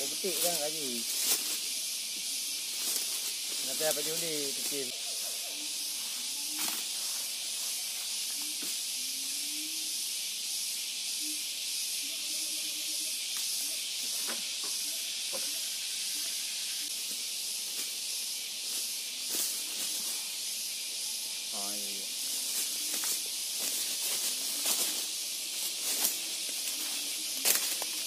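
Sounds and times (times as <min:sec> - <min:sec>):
high-pitched insect chorus: 0:00.0 - 0:28.0.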